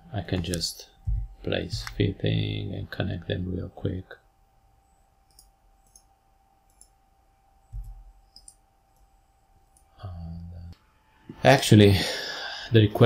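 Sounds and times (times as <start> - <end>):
faint steady hum: 0.0 - 13.0
computer mouse clicking: 5.3 - 6.1, 7.8 - 9.1.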